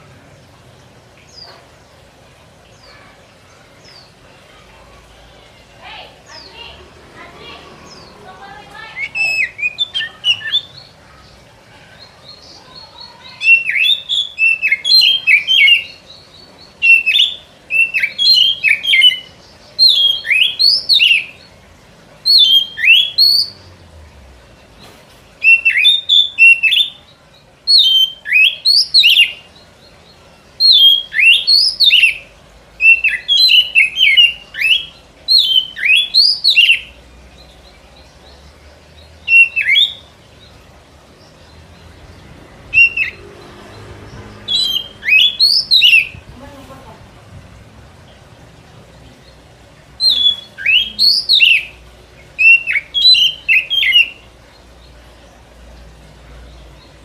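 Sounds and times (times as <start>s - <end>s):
bird song whistled phrases: 8.8s - 10.9s, 12.3s - 21.5s, 22.3s - 23.6s, 25.4s - 27.0s, 27.7s - 29.5s, 30.6s - 37.0s, 39.2s - 40.1s, 42.7s - 43.2s, 44.5s - 46.3s, 50.0s - 51.8s, 52.4s - 54.3s.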